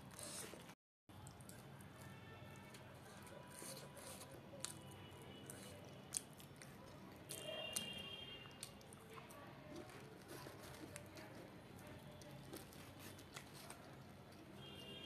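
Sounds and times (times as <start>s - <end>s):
quiet chewing: 0.0s - 15.0s.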